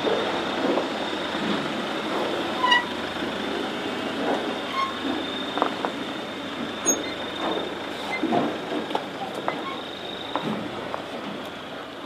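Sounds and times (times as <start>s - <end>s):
truck drivetrain rumble: 0.0s - 12.0s
short high squeaks: 2.6s - 3.0s, 4.6s - 5.7s, 6.8s - 8.3s.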